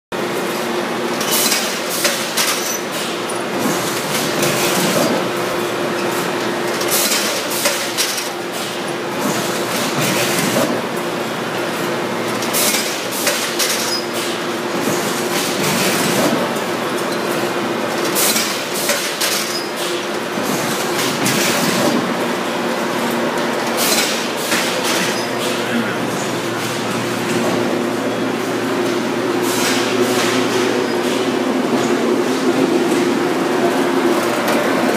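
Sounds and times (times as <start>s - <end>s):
steady machine hum: 19.8s - 34.9s.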